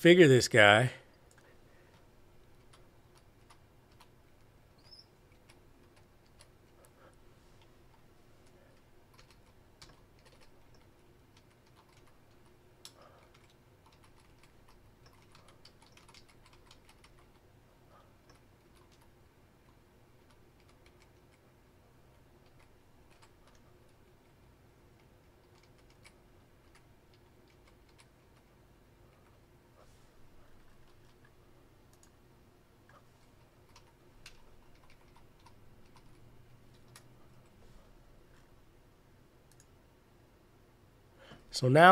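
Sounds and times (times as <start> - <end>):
low steady hum: 0.0 - 41.9
typing on computer keyboard: 9.1 - 17.4, 18.3 - 19.1, 20.2 - 21.4, 22.4 - 24.0, 25.0 - 28.5, 33.7 - 37.1.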